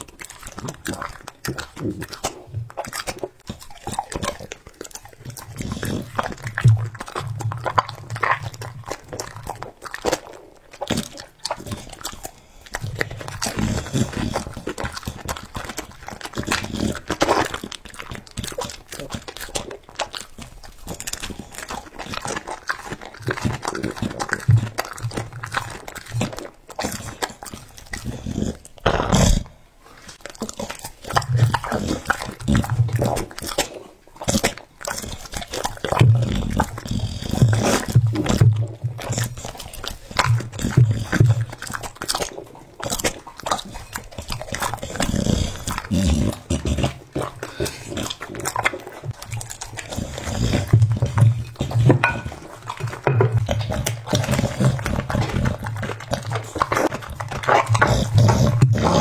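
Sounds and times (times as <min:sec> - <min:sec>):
dog crunching food: 0:00.0 - 0:59.0
dog grunting breaths: 0:00.0 - 0:59.0
dog growling low: 0:35.9 - 0:39.6, 0:44.5 - 0:59.0.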